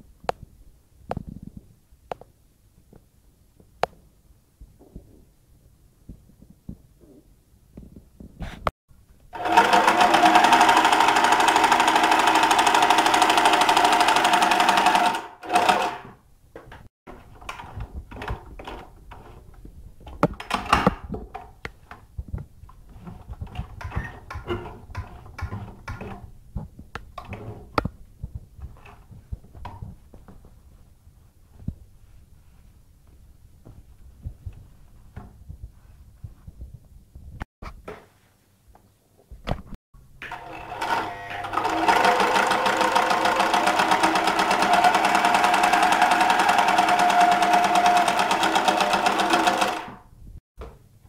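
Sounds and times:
sewing machine running: 9.4s - 16.1s, 40.2s - 50.0s.

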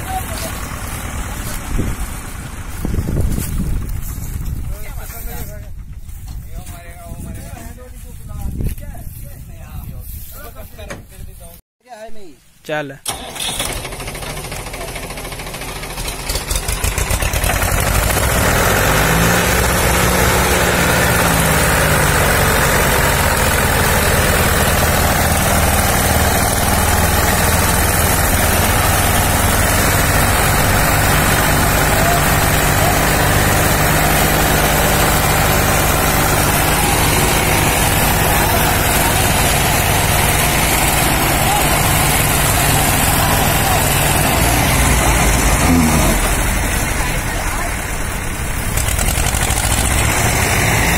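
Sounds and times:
tractor diesel engines revving: 0.0s - 4.8s, 13.0s - 50.9s.

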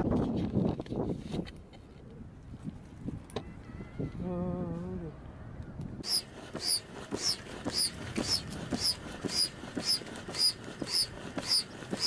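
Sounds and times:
foot pump rushing air: 6.0s - 12.0s.

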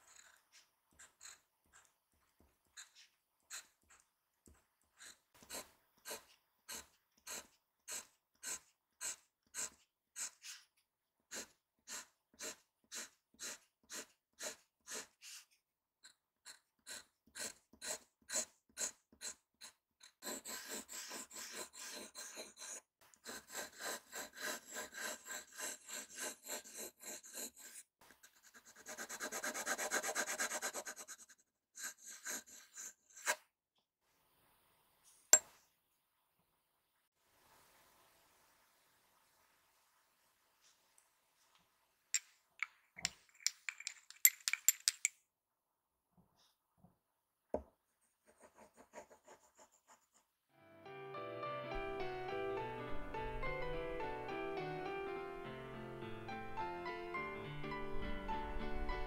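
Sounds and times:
pen nib scratching on paper: 0.0s - 10.7s, 11.3s - 33.4s, 48.2s - 50.3s.

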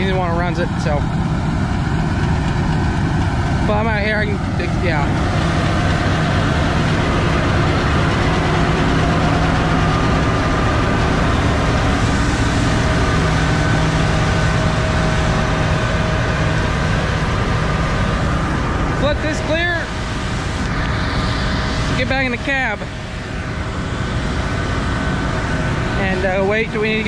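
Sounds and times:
combine harvester engine drone: 0.0s - 27.0s
constant machine whine: 0.0s - 27.0s.

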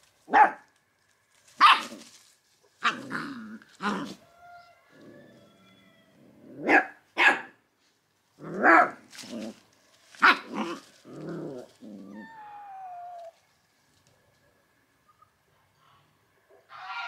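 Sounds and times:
puppies barking: 1.6s - 1.9s
puppy whining: 11.3s - 13.4s.

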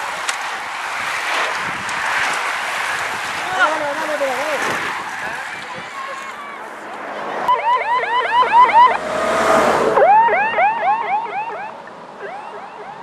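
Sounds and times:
vehicle engine and road noise: 0.0s - 13.0s
siren yelping: 7.5s - 13.0s.

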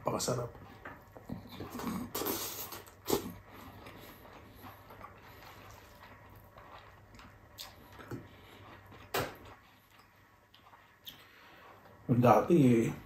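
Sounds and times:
person chewing food: 0.3s - 13.0s
lip smacks: 1.2s - 11.3s.

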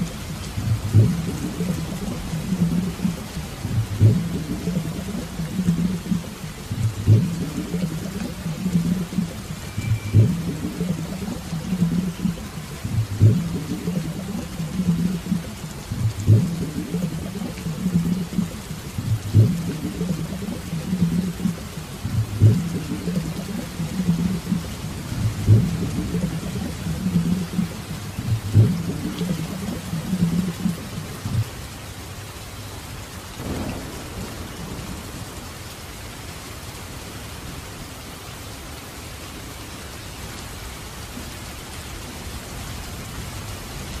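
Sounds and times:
rain falling: 0.0s - 44.0s
low rumble: 0.6s - 31.5s.

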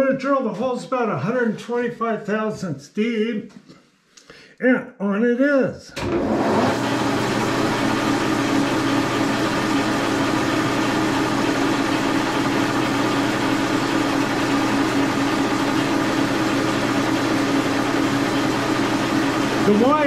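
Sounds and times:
milling machine motor hum: 6.0s - 20.0s.

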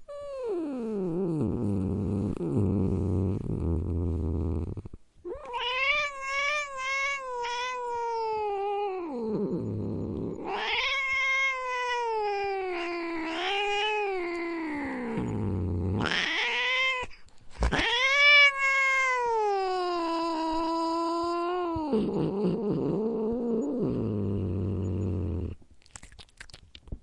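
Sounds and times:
cat yowling: 5.3s - 9.1s, 10.4s - 14.6s, 16.0s - 21.9s.

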